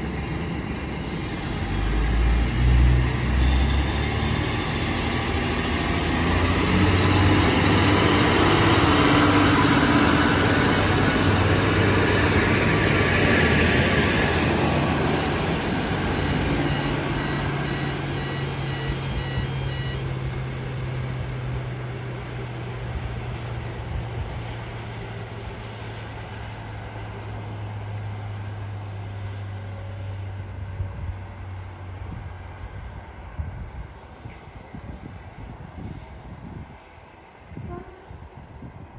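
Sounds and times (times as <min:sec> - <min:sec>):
train wheels on rails: 0:00.0 - 0:28.5
diesel engines droning: 0:00.0 - 0:37.9.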